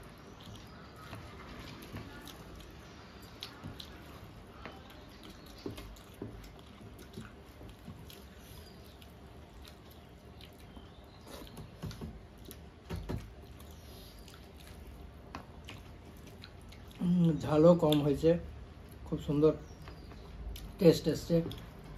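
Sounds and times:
chewing: 0.0s - 21.9s.

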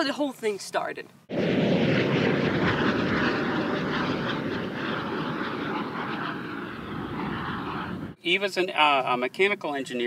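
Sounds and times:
electric motorcycle rushing past: 1.3s - 8.2s.

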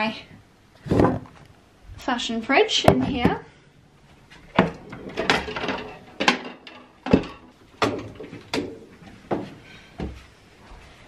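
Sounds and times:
hangers clicking and knocking: 4.6s - 8.8s.

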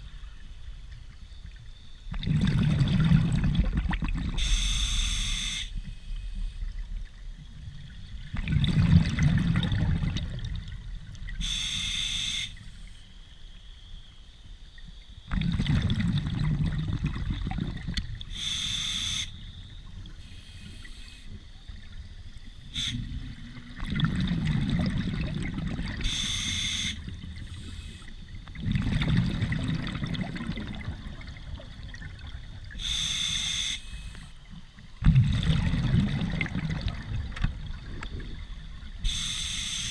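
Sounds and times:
burble of exhaled bubbles: 2.1s - 4.5s, 6.6s - 11.4s, 15.3s - 18.3s, 23.0s - 26.2s, 28.2s - 32.8s, 34.8s - 39.0s
hissing regulator inhale: 11.4s - 13.1s, 18.3s - 19.3s, 20.2s - 21.4s, 22.7s - 23.2s, 26.0s - 28.2s, 32.8s - 34.4s, 39.0s - 39.9s.

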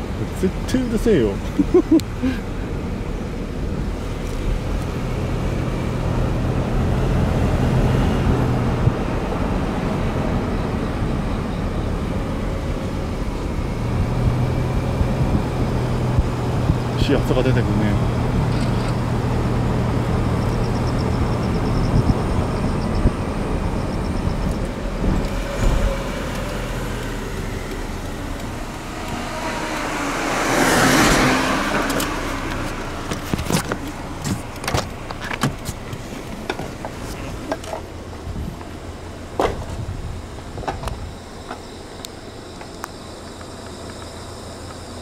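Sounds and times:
road traffic rumble: 0.0s - 45.0s
vehicle passing: 13.8s - 34.6s.

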